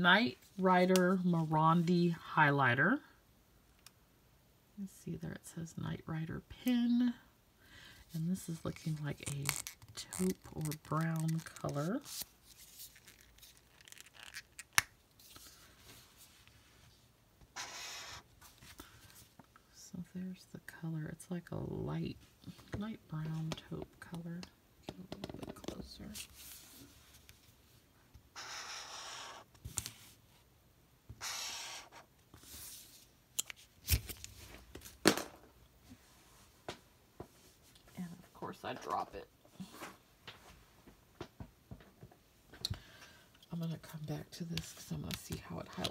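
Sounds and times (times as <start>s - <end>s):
paper rustling: 8.8s - 14.6s
highlighter scratching on paper: 17.5s - 18.3s, 28.3s - 29.5s, 31.2s - 32.7s.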